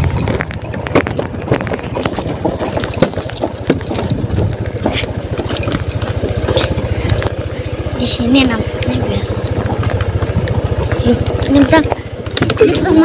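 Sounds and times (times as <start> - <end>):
knocks and rattles from rough ground: 0.0 - 13.0
small motorcycle engine running: 0.0 - 13.0.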